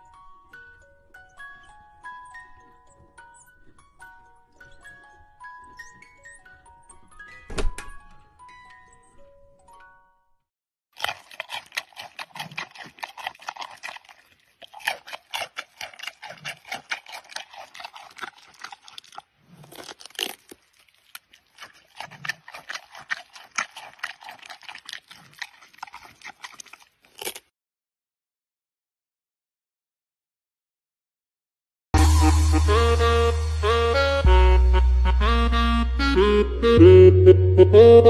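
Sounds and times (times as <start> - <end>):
panda crunching pumpkin: 11.0 - 27.5.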